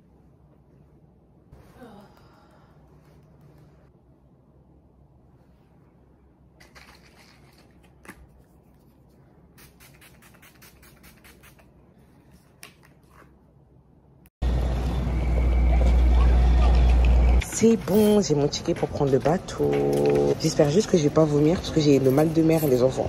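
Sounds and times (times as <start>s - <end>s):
traffic rumble: 14.4s - 23.0s.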